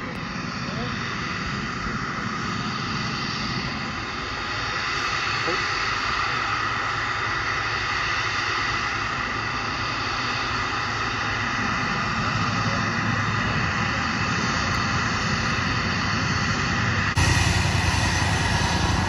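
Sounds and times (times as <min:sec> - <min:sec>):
jet engines whining: 0:00.0 - 0:19.0.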